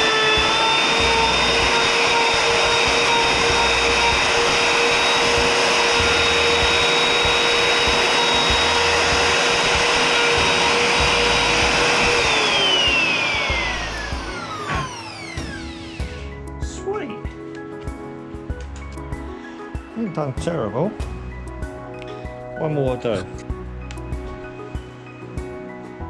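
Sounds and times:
router motor spinning down: 0.0 - 16.4
router motor whine: 0.0 - 16.4.

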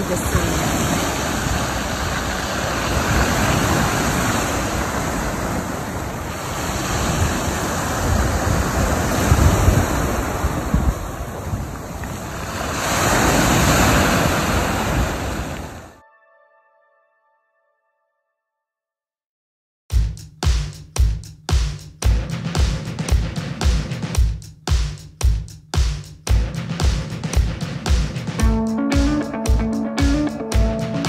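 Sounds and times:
waves washing over pebbles: 0.0 - 15.8
wind rumbling on microphone: 0.0 - 15.9.

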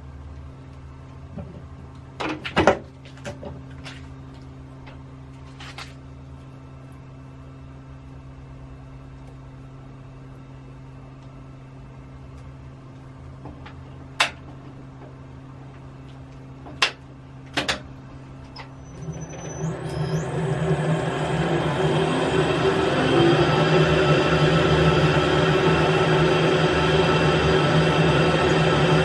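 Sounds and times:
lathe tool grinding with whine: 18.8 - 29.0
metal lathe humming: 18.8 - 29.0.

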